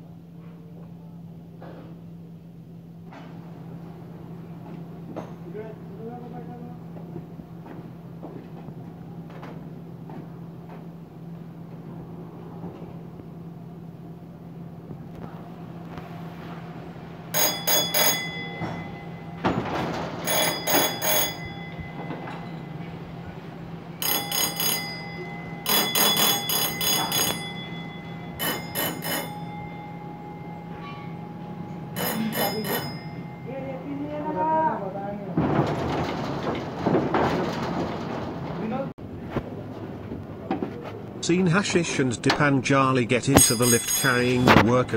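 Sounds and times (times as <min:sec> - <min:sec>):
machinery hum: 0:00.0 - 0:44.9
signal bell ringing: 0:17.3 - 0:34.9, 0:43.2 - 0:44.9.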